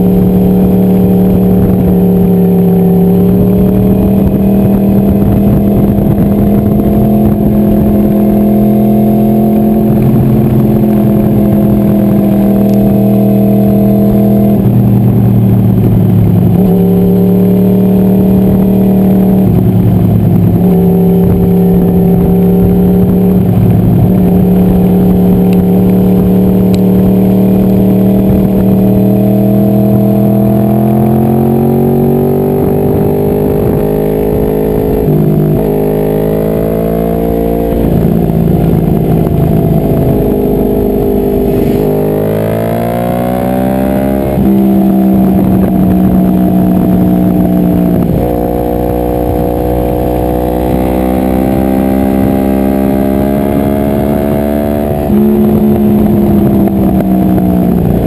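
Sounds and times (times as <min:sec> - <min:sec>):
sportbike engine revving: 0:00.0 - 0:58.0.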